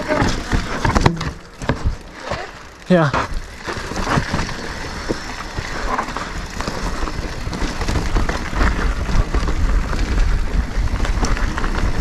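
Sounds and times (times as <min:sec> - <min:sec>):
mountain bike rattling over rocks: 0:00.0 - 0:12.0
wind rumble on microphone: 0:03.3 - 0:12.0.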